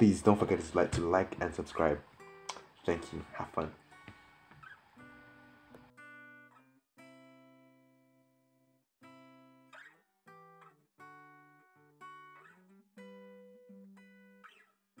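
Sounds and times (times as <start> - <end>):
strummed acoustic guitar chords: 0.0 - 7.8.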